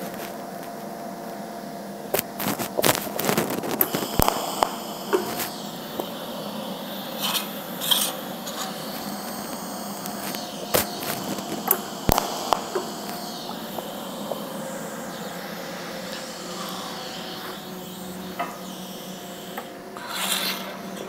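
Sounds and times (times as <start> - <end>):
machine fan hum: 0.0 - 21.0
shielding gas hiss: 0.0 - 21.0
welding arc cracks: 2.1 - 21.0.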